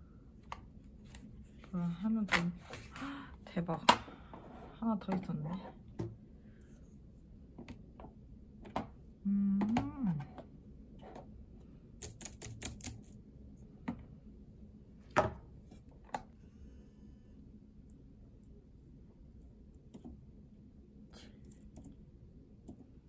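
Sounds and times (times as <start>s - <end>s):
person humming: 9.2s - 10.3s.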